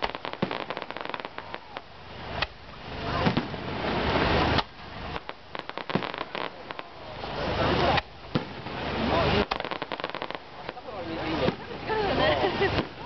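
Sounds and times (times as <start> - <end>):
firework bang: 0.0 - 2.6, 3.2 - 7.0, 7.9 - 8.8, 9.4 - 11.7
fireworks crackling pops: 0.0 - 11.9, 12.6 - 13.0
rush of noise: 0.0 - 13.0.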